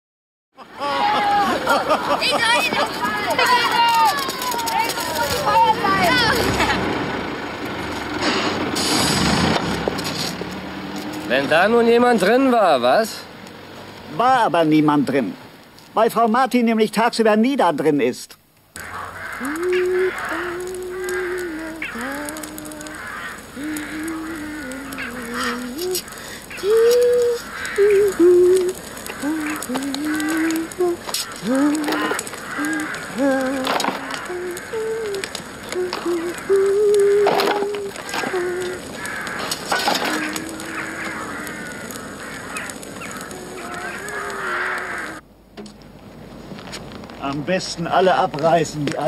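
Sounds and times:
flock of birds calling: 0:00.6 - 0:08.8, 0:18.8 - 0:45.2
faint clicks: 0:18.3 - 0:45.9
reedy wordless melody: 0:18.7 - 0:45.6.

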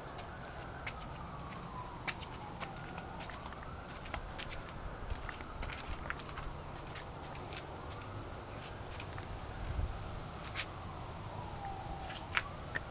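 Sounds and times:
insects chirring: 0:00.0 - 0:12.9.

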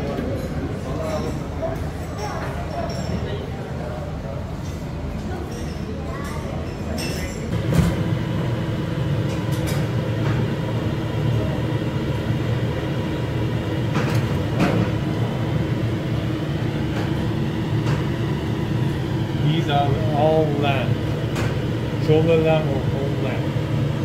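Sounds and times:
machinery hum and rumble: 0:07.4 - 0:24.0.

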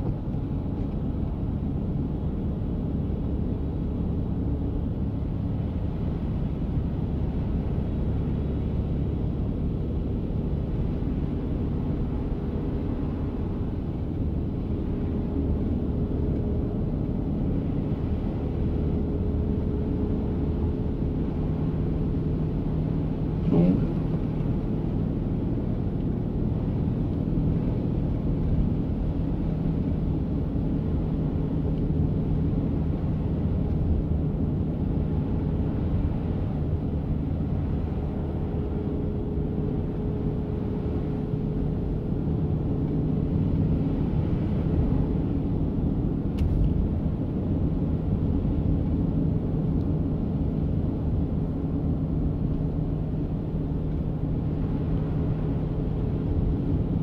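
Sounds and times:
low engine hum: 0:00.0 - 0:57.0.

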